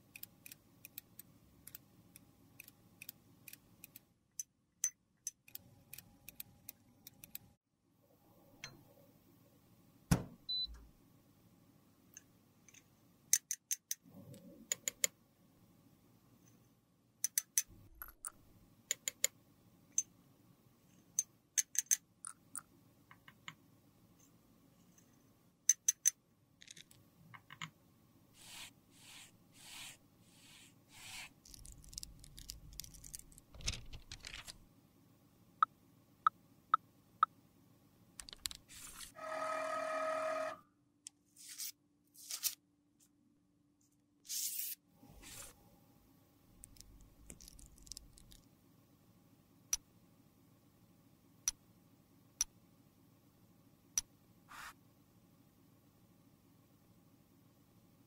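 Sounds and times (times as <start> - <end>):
electronic beep: 10.5 - 10.8
soft powder scrapes: 28.4 - 32.2, 44.3 - 45.6.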